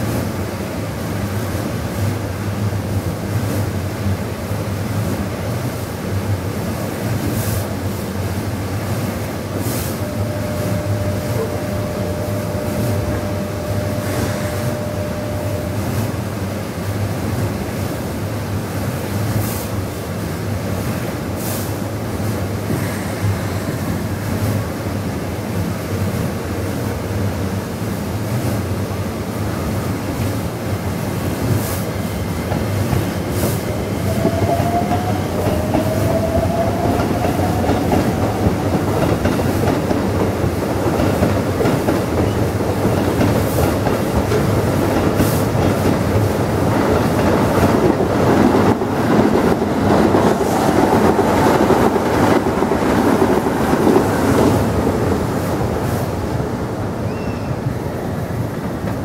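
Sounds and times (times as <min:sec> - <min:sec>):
train and brushes rumbling: 0:00.0 - 0:59.0
steady whine: 0:09.9 - 0:16.5.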